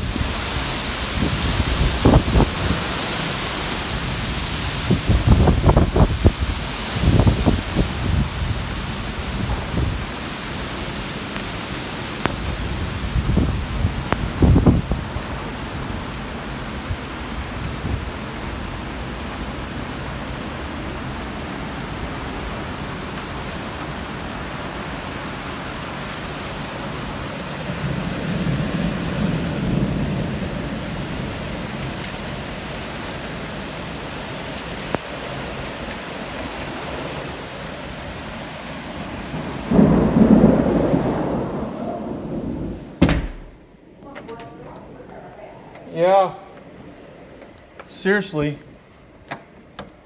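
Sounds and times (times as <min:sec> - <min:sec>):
thunder rumbling: 0:00.0 - 0:23.1, 0:26.9 - 0:32.5, 0:38.8 - 0:45.7
heavy rain pouring: 0:00.0 - 0:50.0.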